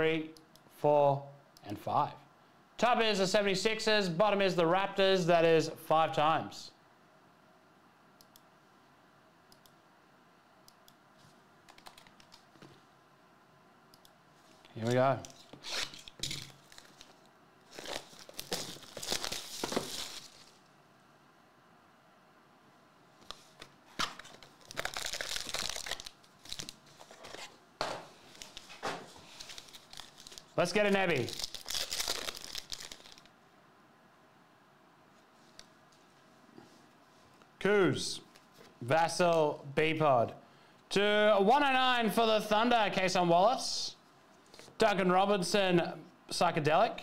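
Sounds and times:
foil packs crinkling: 15.8s - 20.6s, 24.0s - 27.5s, 28.2s - 33.3s.

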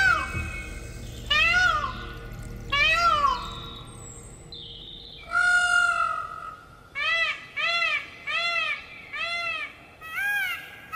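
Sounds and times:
peacock calling: 0.0s - 4.1s.

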